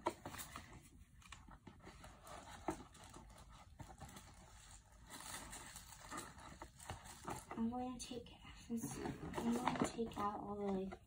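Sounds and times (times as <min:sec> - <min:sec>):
soft rustling: 0:00.0 - 0:11.0.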